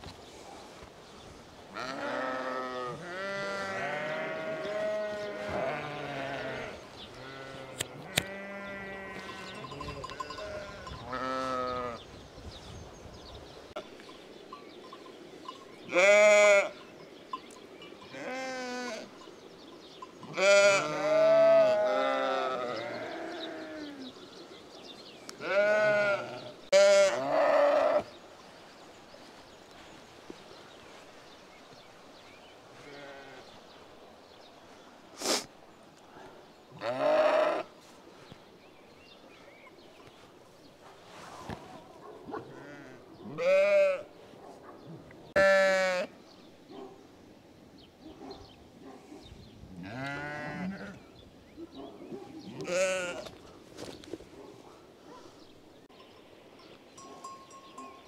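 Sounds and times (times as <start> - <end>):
sheep bleating: 1.8 - 12.0, 15.9 - 16.8, 20.3 - 24.0, 25.4 - 28.1, 36.8 - 37.7, 42.5 - 44.1, 45.4 - 46.1, 49.8 - 51.0, 52.5 - 53.3.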